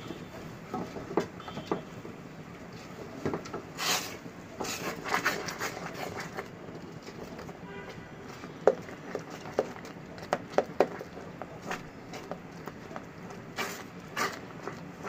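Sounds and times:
spatula scraping metal pot: 3.7s - 7.3s, 13.5s - 15.0s.

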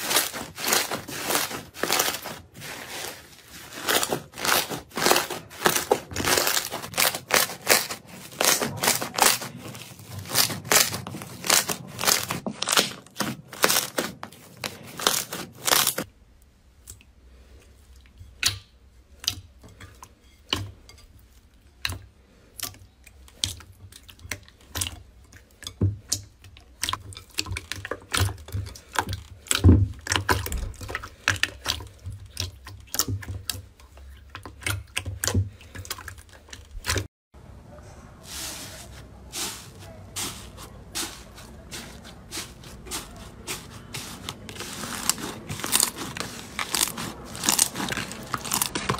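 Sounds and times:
slime crackling and tearing: 0.0s - 16.1s, 40.2s - 48.9s.

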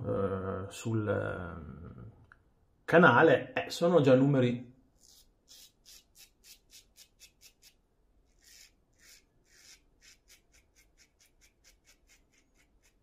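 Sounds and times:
razor scraping stubble: 5.0s - 13.0s.

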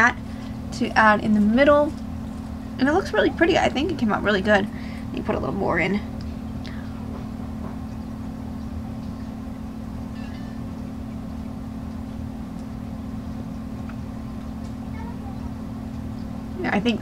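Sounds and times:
motor humming: 0.0s - 17.0s.

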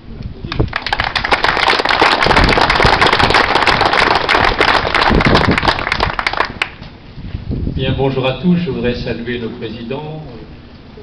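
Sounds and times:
people clapping: 0.4s - 6.8s.

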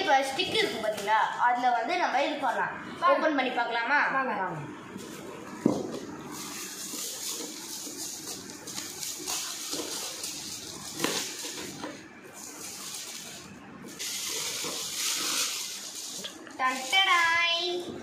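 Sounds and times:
plastic film crinkling and tearing: 6.3s - 17.6s
knife slitting plastic wrap: 6.4s - 11.8s, 14.0s - 17.3s.

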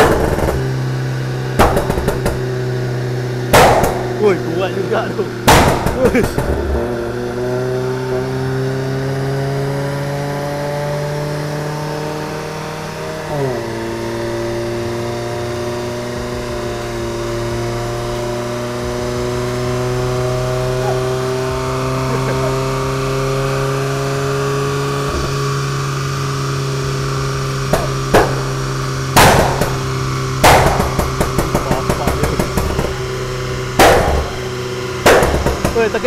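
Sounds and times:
exhaust pops and bangs: 0.0s - 7.4s, 16.0s - 36.0s
car engine idling: 0.0s - 8.5s, 12.3s - 36.0s.

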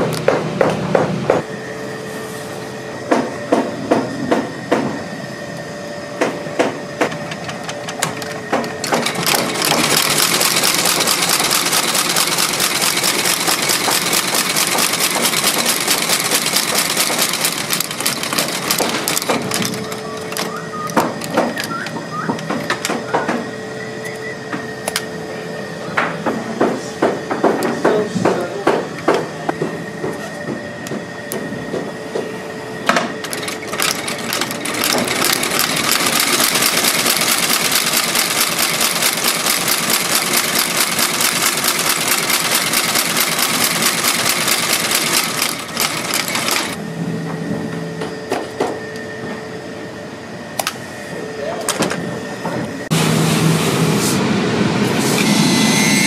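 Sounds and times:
faint machine hum: 0.0s - 56.0s
stitching machine clattering: 7.3s - 21.8s, 33.2s - 46.8s
knocks and clicks: 18.3s - 23.5s.

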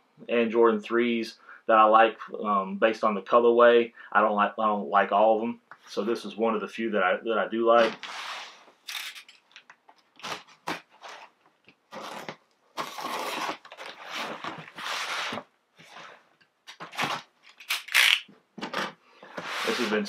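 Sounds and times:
packing tape scraping and tearing: 7.8s - 11.3s, 11.9s - 18.3s.

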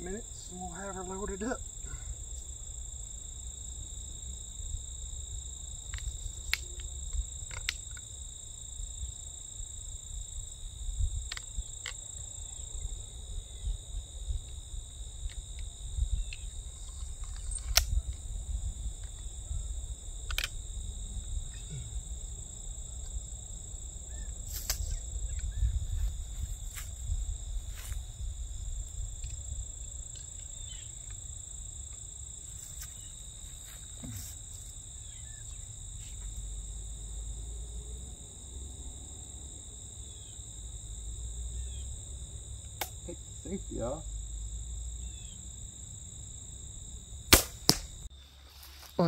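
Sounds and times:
insect chorus: 0.0s - 49.0s
crossbow clicks and knocks: 5.9s - 8.1s, 11.3s - 12.0s, 17.2s - 18.0s, 20.2s - 20.6s.

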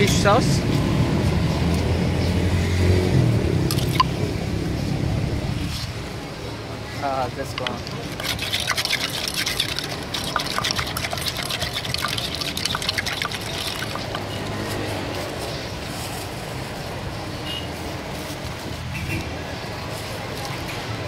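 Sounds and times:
pestle pounding in mortar: 7.5s - 14.5s.

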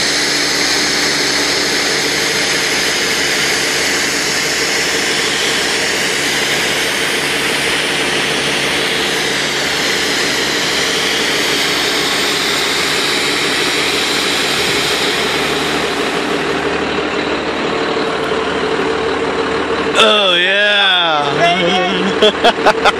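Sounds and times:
rushing hiss of foam jet: 0.0s - 16.4s
truck engine running: 0.0s - 22.9s.

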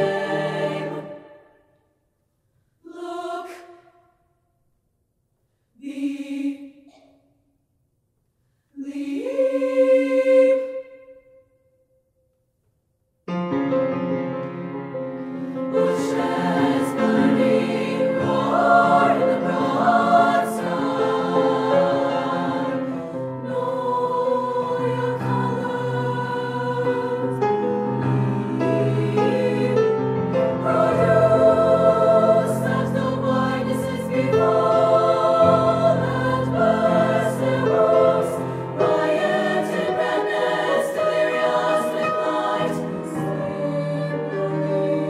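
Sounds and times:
women's choir singing: 0.0s - 1.6s, 2.8s - 4.1s, 5.8s - 6.9s, 8.8s - 11.4s, 15.6s - 45.0s.

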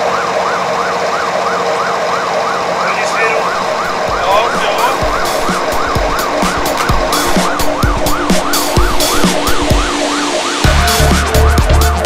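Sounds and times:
siren wailing: 0.0s - 12.0s
low thumps: 3.4s - 12.0s.

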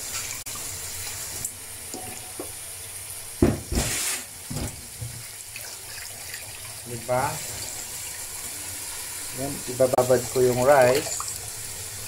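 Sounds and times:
tap running into a pot: 3.4s - 5.3s.

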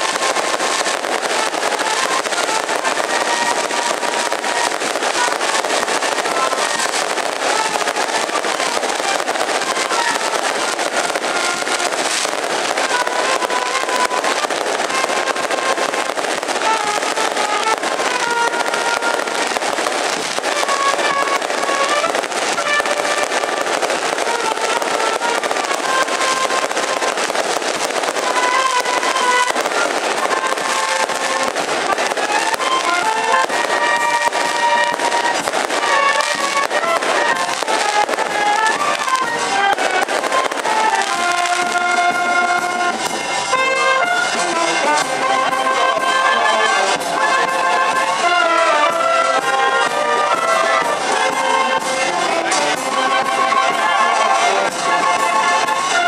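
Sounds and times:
firecrackers crackling and banging: 0.0s - 56.0s
wind band playing melody: 0.0s - 56.0s.

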